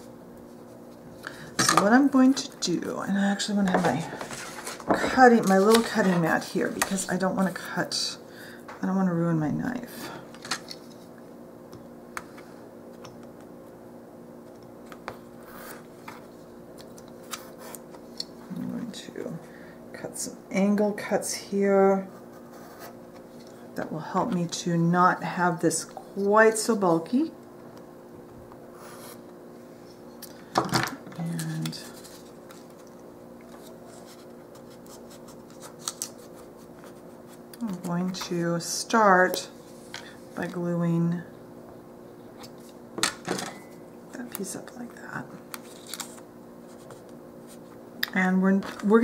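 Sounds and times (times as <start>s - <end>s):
steady low hum: 0.0s - 49.0s
craft knife and paper handling: 31.4s - 38.3s.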